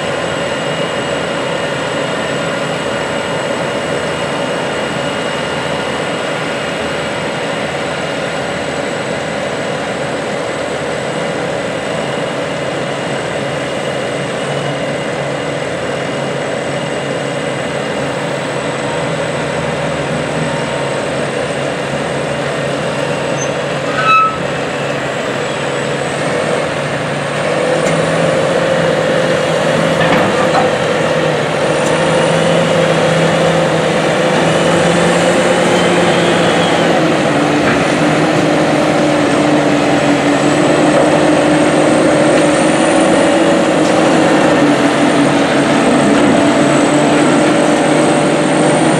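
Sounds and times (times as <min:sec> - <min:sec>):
tractor engine running: 0:00.0 - 0:48.9
short high squeak: 0:23.0 - 0:25.6.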